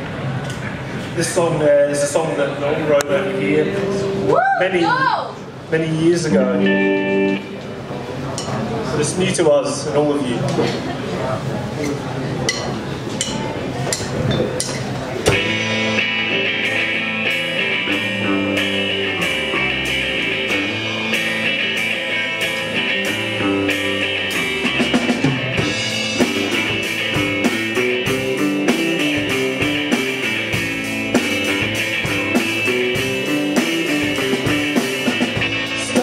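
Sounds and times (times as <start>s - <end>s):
live rock band playing: 2.0s - 8.2s, 15.0s - 36.0s.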